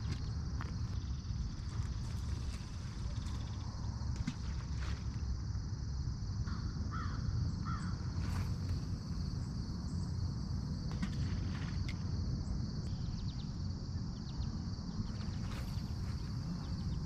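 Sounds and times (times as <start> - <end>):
insects chirring: 0.0 - 17.0
crow cawing: 6.5 - 8.0.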